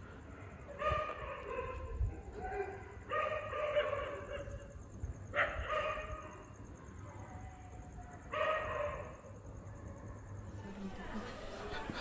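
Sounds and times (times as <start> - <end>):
dogs howling: 10.6 - 12.0.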